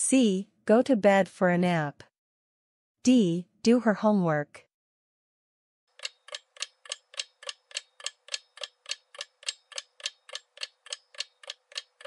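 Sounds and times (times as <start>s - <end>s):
clock ticking: 5.9s - 12.0s.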